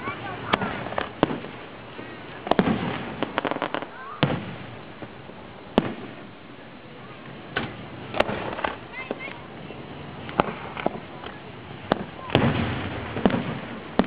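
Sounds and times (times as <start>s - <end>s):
firework crackles: 0.0s - 14.0s
firework shells bursting: 0.0s - 14.0s.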